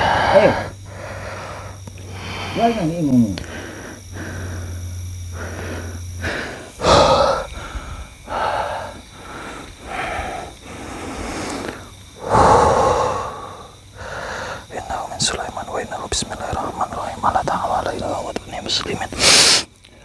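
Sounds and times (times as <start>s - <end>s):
man breathing heavily: 0.0s - 15.6s
low hum: 0.0s - 19.1s.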